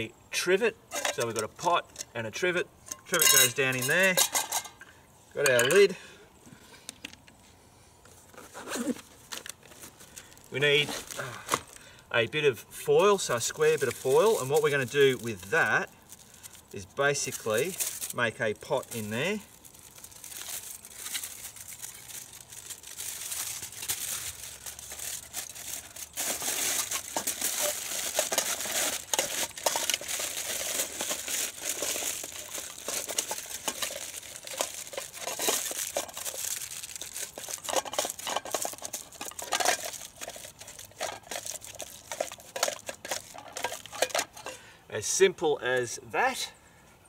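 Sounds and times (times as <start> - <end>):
aluminium foil crinkling: 0.9 - 2.1, 8.1 - 12.0, 12.9 - 44.6.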